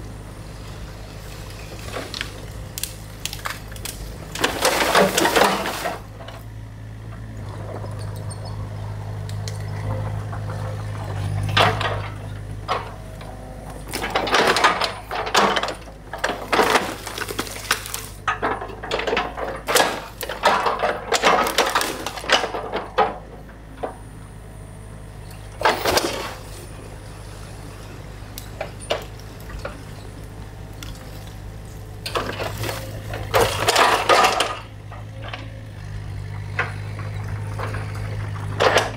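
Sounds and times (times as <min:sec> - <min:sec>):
excavator engine running: 0:00.0 - 0:38.9
sticks cracking and snapping: 0:02.0 - 0:05.6, 0:16.3 - 0:18.2.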